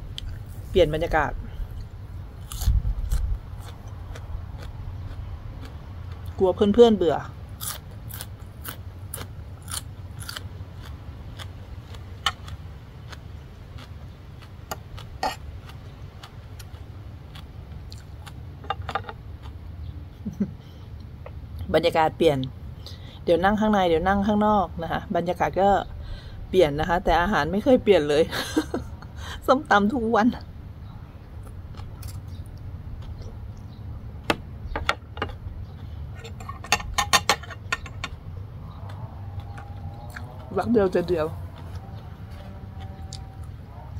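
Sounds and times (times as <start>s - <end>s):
low hum: 0.0s - 43.9s
low steady rumble: 0.0s - 43.9s
person chewing crunchy food: 1.6s - 6.4s, 7.3s - 19.9s, 31.4s - 33.8s, 38.2s - 43.9s
fork clinking and scraping plate: 36.2s - 38.2s.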